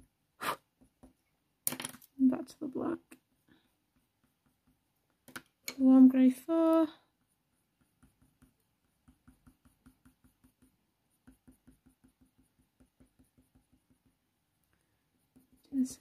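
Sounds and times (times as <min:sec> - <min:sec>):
pencil strokes on paper: 0:00.0 - 0:01.2, 0:02.3 - 0:16.0.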